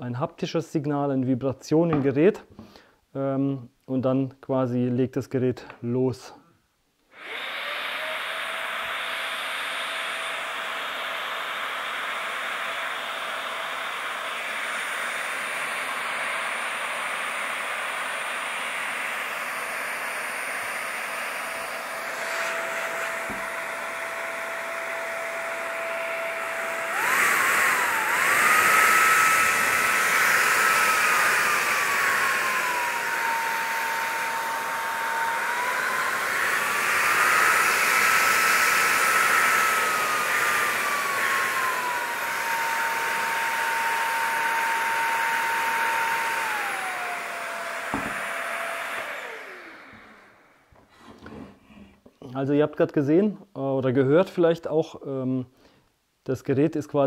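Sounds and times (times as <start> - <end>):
paint sprayer motor whining: 7.1 - 51.4.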